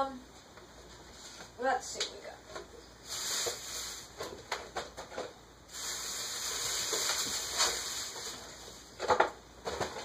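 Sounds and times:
steady high hiss: 2.8 - 4.4, 5.4 - 9.0
kitchen items knocking: 9.0 - 10.0.

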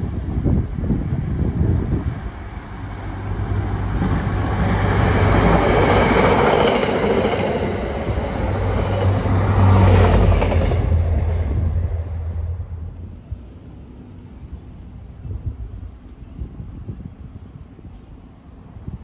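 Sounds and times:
diesel locomotive passing: 0.0 - 16.1
train coaches rolling over rails: 1.4 - 13.8.

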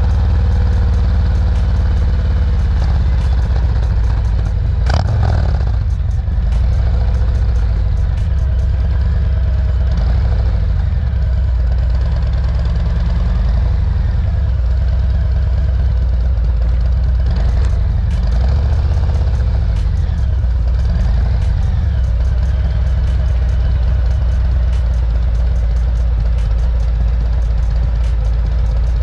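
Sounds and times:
motorcycle engine rumbling: 0.0 - 29.0.

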